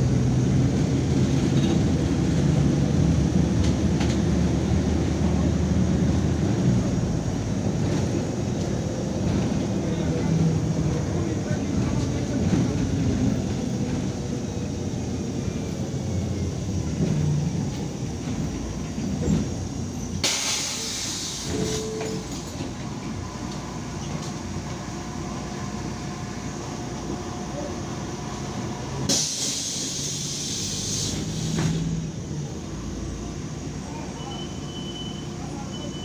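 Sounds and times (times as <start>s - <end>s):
bus engine rumbling: 0.0s - 36.0s
compressed air hiss: 20.2s - 21.8s, 29.1s - 31.9s.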